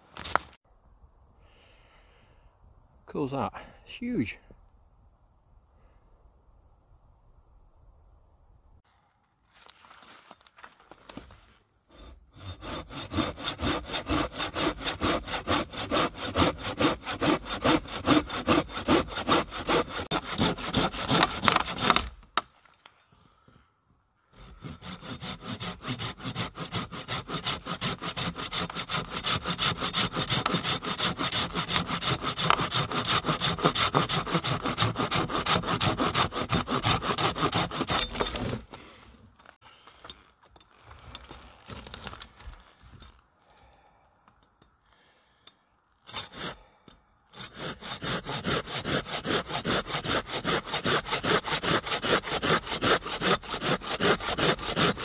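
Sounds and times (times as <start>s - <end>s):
hand saw cutting wood: 11.9s - 22.2s, 24.3s - 38.8s, 46.0s - 46.6s, 47.3s - 55.0s.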